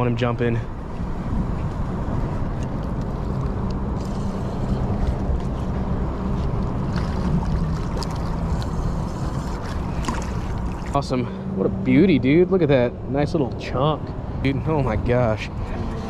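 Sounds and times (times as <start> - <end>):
wind rumble on microphone: 0.0 - 16.0
water: 2.5 - 13.3.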